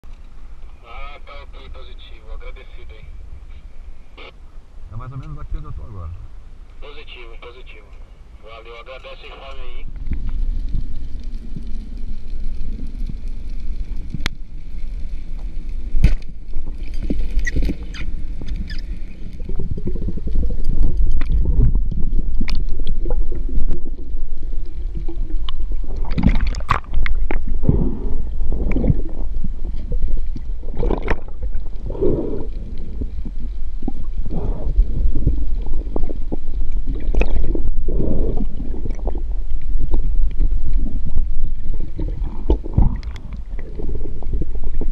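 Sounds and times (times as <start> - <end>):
underwater low rumble: 0.0 - 44.9
air bubbles gurgling: 15.5 - 44.9.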